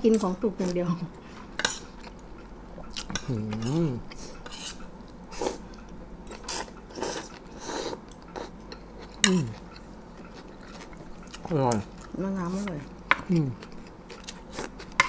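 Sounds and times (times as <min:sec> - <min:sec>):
person humming: 0:03.2 - 0:04.1, 0:09.2 - 0:09.6, 0:13.3 - 0:13.6.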